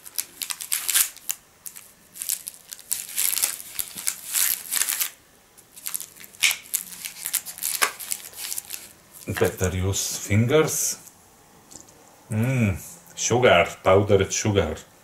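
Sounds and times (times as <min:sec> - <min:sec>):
plastic wrap crinkling: 0:00.0 - 0:09.8.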